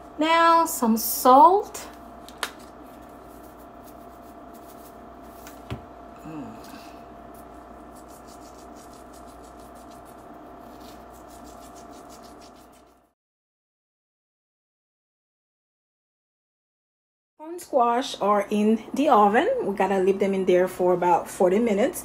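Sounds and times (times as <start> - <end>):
electrical hum: 0.0 - 13.2, 17.4 - 22.0
salt grinder grinding: 7.9 - 13.1.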